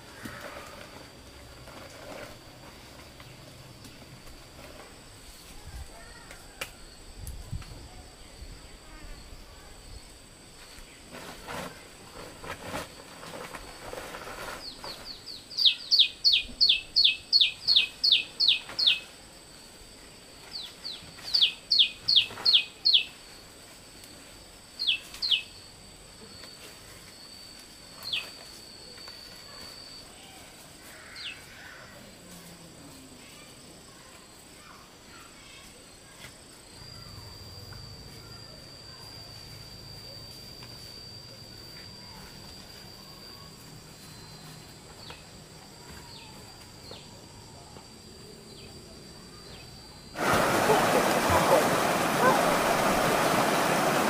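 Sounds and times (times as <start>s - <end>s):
high insect hum: 0.0s - 54.0s
bird chirping: 14.6s - 19.1s, 20.6s - 23.2s.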